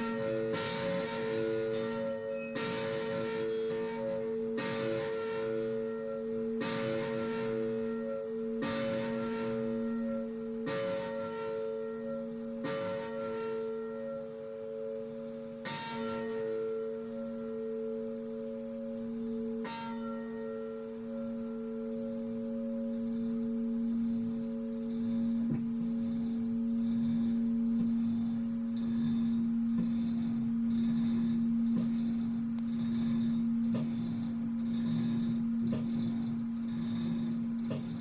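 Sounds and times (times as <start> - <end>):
church bell ringing: 0.0 - 31.8
rhythmic high hiss: 20.6 - 38.0.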